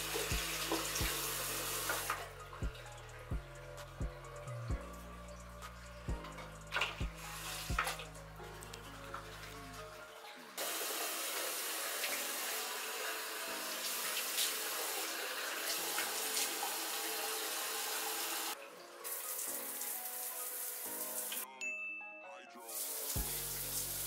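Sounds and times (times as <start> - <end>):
faucet water splashing into sink: 0.0 - 2.2, 13.6 - 20.2.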